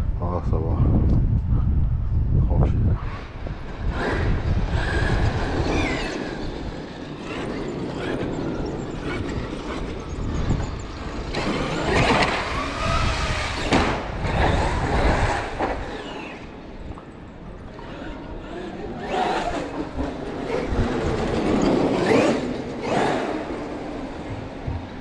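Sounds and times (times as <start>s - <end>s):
electric motor whining: 3.8s - 17.0s.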